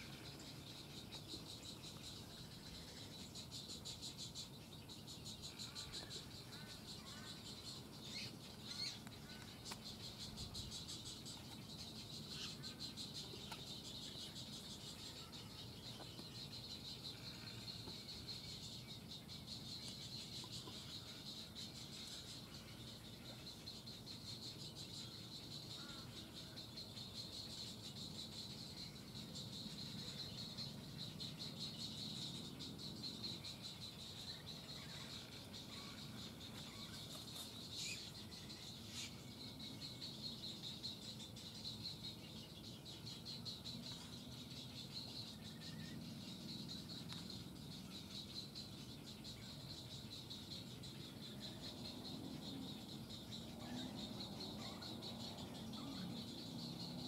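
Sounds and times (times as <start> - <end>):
bird chirps: 0.0 - 57.0
insect chorus trilling: 0.0 - 57.0.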